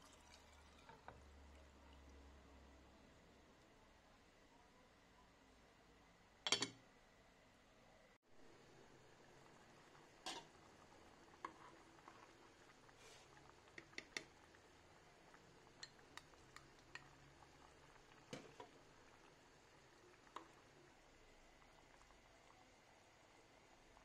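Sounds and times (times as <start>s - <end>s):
faint low hum: 0.0s - 24.0s
utensils clinking against saucepan: 6.5s - 6.8s.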